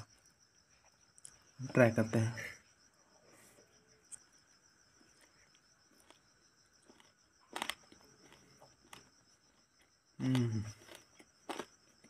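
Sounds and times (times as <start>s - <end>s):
crickets trilling: 0.0s - 12.0s
person eating by hand: 0.1s - 1.6s, 4.0s - 12.0s.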